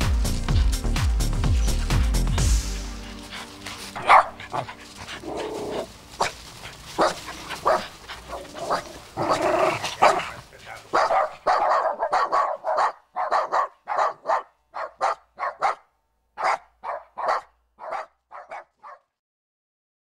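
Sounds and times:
dog barking: 4.0s - 4.7s, 5.3s - 6.4s, 7.0s - 19.2s.

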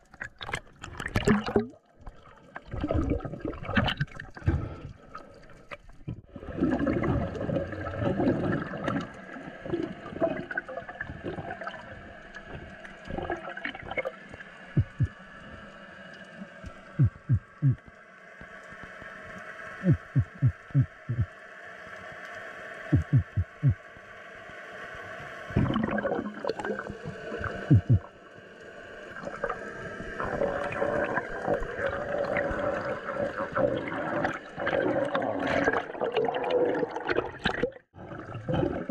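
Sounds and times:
underwater bubbling and gurgling: 0.0s - 38.9s
low thumps: 14.8s - 15.1s, 17.0s - 17.8s, 19.9s - 21.3s, 22.9s - 23.8s, 27.7s - 28.0s.

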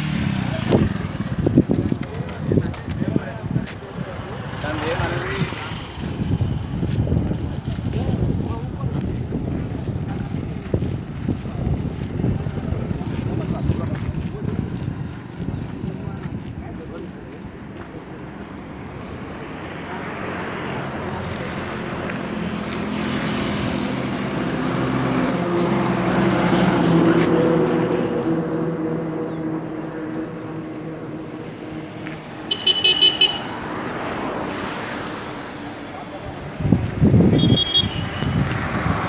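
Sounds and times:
vehicle engine passing: 9.4s - 39.0s
vehicle horn honk: 32.5s - 33.6s, 37.3s - 38.4s.

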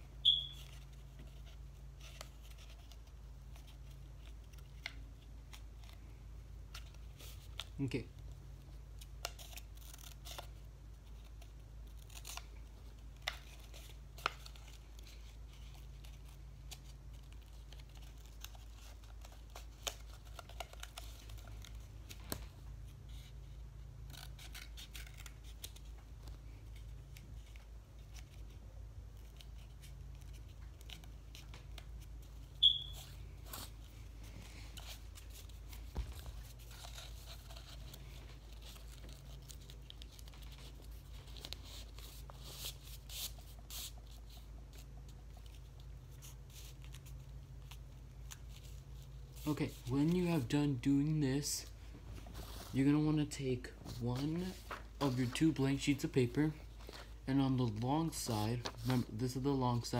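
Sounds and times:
high-pitched squeak: 0.2s - 0.7s, 32.6s - 33.1s
scissors snipping paper: 9.0s - 22.3s
paper rustling: 9.0s - 59.9s.

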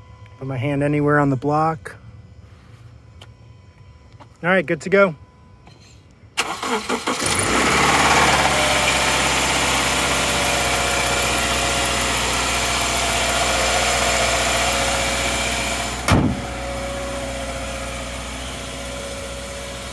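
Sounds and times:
car engine idling with rattle: 7.8s - 19.9s
car hood slamming shut: 16.0s - 16.5s.

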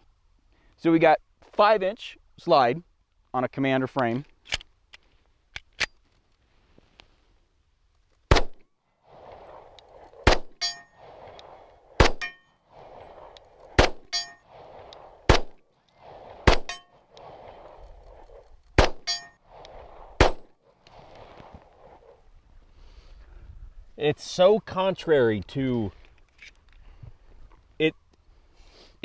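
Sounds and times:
pistol shots: 8.3s - 8.6s, 10.2s - 10.6s, 12.0s - 12.4s, 13.8s - 14.2s, 15.3s - 15.6s, 16.4s - 16.8s, 18.8s - 19.1s, 20.2s - 20.5s
metallic ring: 10.6s - 11.0s, 12.2s - 12.6s, 14.1s - 14.5s, 16.7s - 17.0s, 19.0s - 19.4s.

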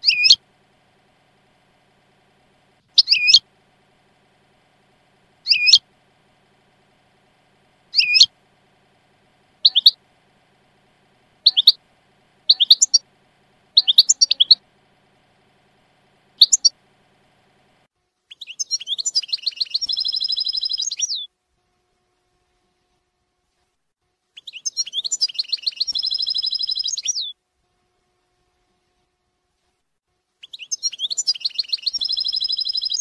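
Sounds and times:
goldfinch chirps and trills: 0.0s - 0.4s, 2.9s - 3.4s, 5.4s - 5.8s, 7.9s - 8.3s, 9.6s - 10.0s, 11.4s - 11.8s, 12.4s - 13.0s, 13.7s - 14.6s, 16.4s - 16.7s, 18.3s - 21.3s, 24.4s - 27.3s, 30.4s - 33.0s.

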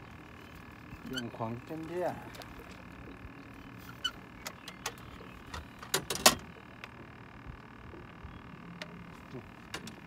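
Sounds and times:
sharp clicks and knocks of gear: 4.0s - 7.0s, 8.8s - 10.0s.

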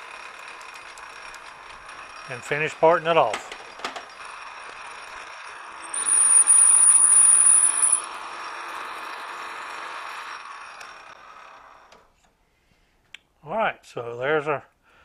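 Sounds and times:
lathe running: 0.0s - 12.0s
lathe tool squealing: 0.1s - 2.9s, 3.7s - 11.8s.

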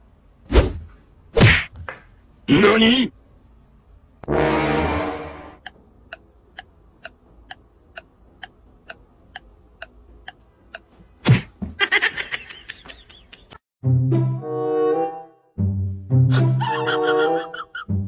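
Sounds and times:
clock ticking: 5.6s - 10.9s
music: 13.8s - 18.0s.

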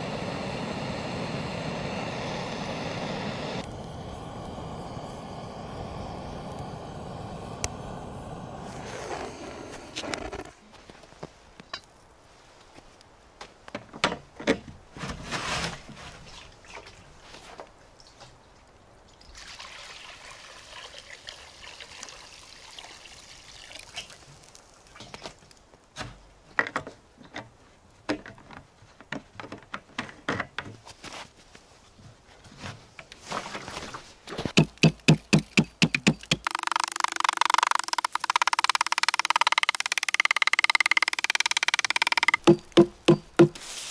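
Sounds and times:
water pouring into pot: 19.4s - 25.0s.

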